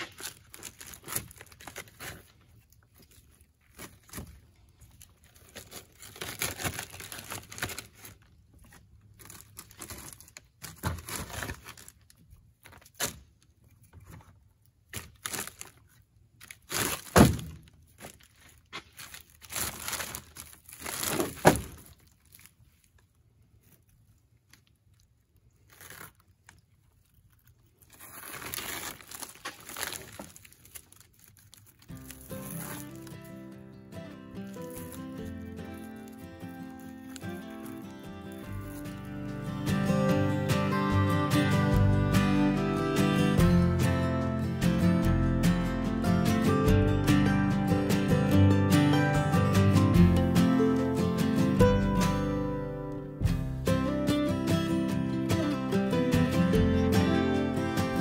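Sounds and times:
bag netting rustling: 0:00.0 - 0:13.2, 0:14.9 - 0:23.9, 0:27.4 - 0:39.4.

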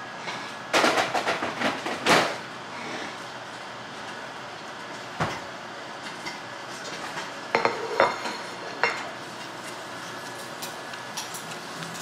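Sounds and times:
dishes and utensils clattering: 0:06.3 - 0:09.1.

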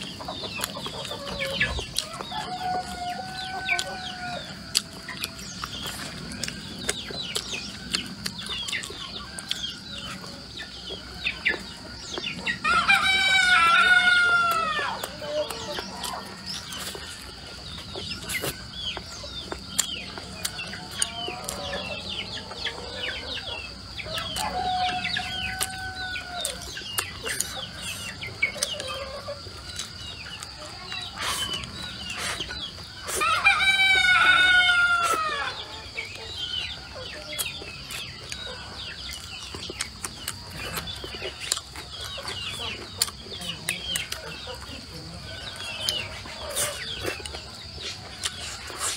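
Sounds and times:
chickens clucking: 0:00.0 - 0:48.9
rooster crowing: 0:01.2 - 0:04.8, 0:12.6 - 0:16.6, 0:21.0 - 0:26.8, 0:33.1 - 0:35.9.

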